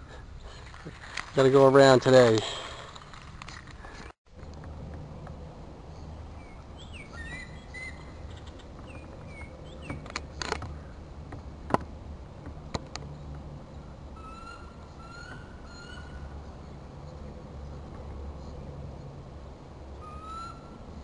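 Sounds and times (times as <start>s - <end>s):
birds chirping and whistling: 6.4s - 10.1s, 14.1s - 16.5s, 20.0s - 20.9s.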